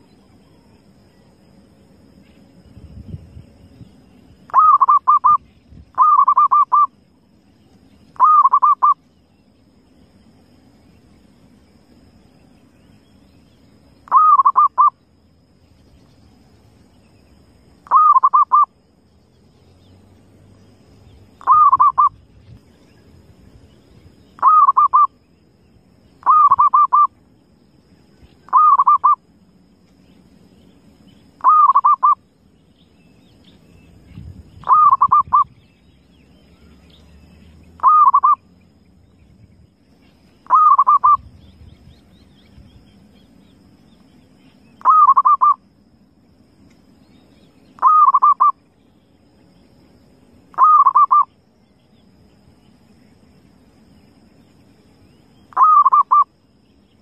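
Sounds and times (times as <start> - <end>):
dove cooing: 4.5 - 5.4, 6.0 - 6.9, 8.2 - 9.0, 14.1 - 14.9, 17.9 - 18.7, 21.4 - 22.2, 24.4 - 25.1, 26.2 - 27.1, 28.5 - 29.2, 31.4 - 32.2, 34.6 - 35.5, 37.8 - 38.4, 40.4 - 41.3, 44.8 - 45.6, 47.8 - 48.5, 50.6 - 51.3, 55.5 - 56.3.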